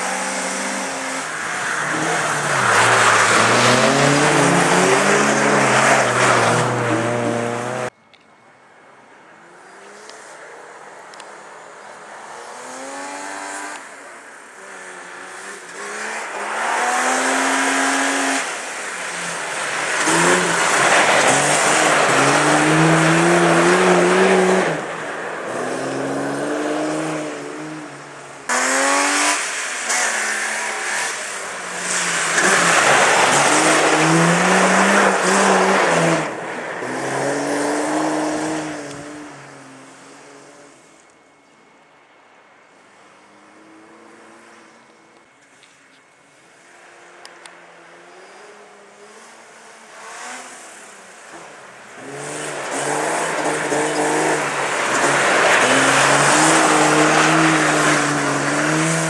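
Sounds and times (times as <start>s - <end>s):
rally car engine revving: 0.0s - 7.9s, 14.6s - 39.4s, 52.0s - 59.0s.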